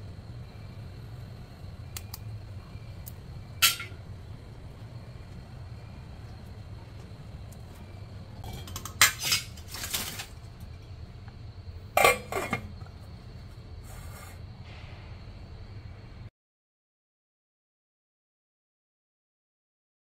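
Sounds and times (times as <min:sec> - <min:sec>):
steady low hum: 0:00.0 - 0:16.3
metal pot and lid clanking: 0:03.6 - 0:04.0, 0:08.4 - 0:10.2, 0:11.9 - 0:12.8.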